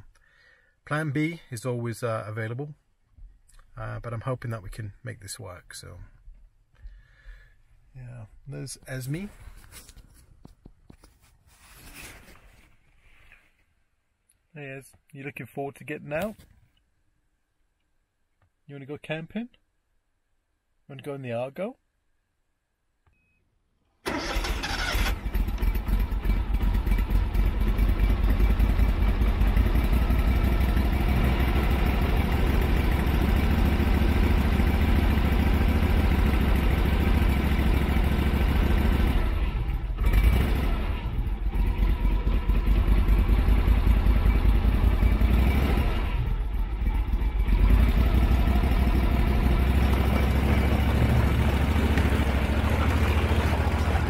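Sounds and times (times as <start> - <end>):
vehicle engine running: 24.1 - 54.0.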